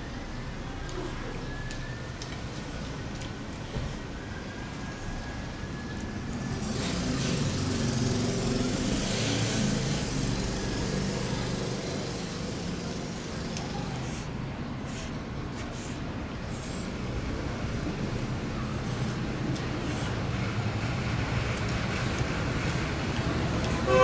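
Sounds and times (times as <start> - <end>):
vehicle engine passing by: 6.4 - 13.4.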